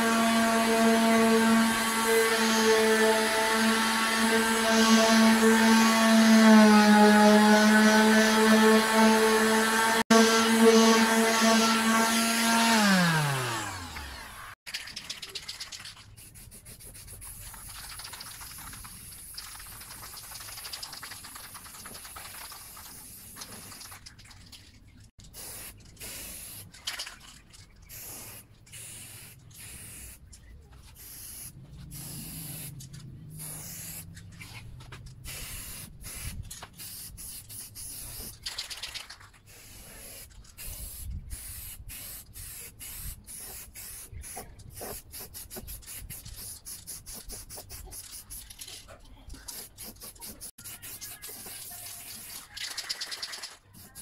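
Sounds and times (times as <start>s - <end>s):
spray paint can hissing: 14.7s - 24.2s, 25.2s - 48.8s, 49.4s - 54.0s.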